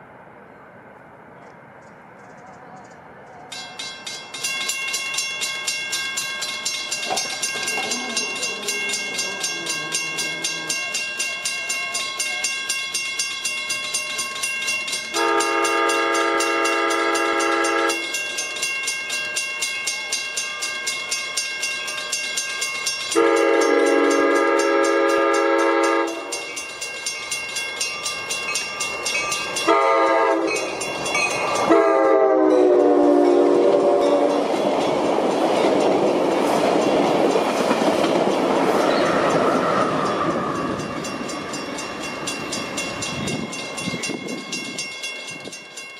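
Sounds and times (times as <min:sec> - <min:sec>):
bell ringing: 0:03.5 - 0:32.1, 0:32.8 - 0:45.9
train horn blasts: 0:15.1 - 0:18.2, 0:23.1 - 0:26.5, 0:29.6 - 0:30.8, 0:31.6 - 0:34.5.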